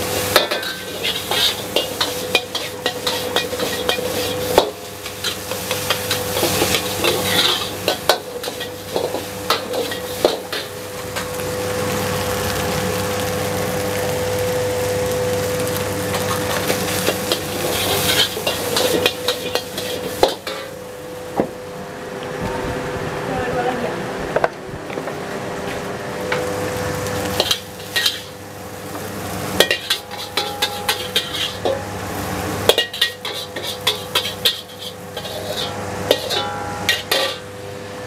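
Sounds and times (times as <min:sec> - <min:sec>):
rice sizzling in pan: 0:00.0 - 0:21.7, 0:25.6 - 0:38.0
constant hum: 0:00.0 - 0:38.0
metal spatula clanging in wok: 0:00.3 - 0:10.8, 0:27.4 - 0:28.3, 0:29.6 - 0:31.9, 0:32.7 - 0:37.5.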